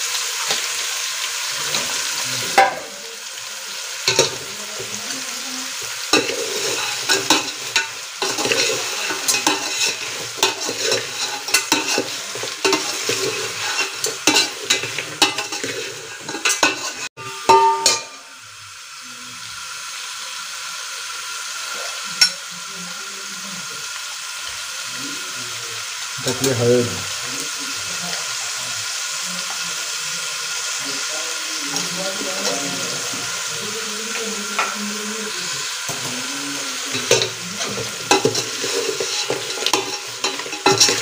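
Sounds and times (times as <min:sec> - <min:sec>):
meat sizzling in a pot: 0:00.0 - 0:41.0
metal ladle scraping and clinking: 0:06.1 - 0:18.2, 0:36.9 - 0:41.0.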